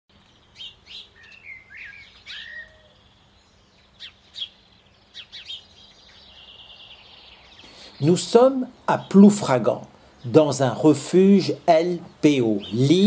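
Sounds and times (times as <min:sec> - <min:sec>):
songbirds chirping: 0:00.1 - 0:13.0.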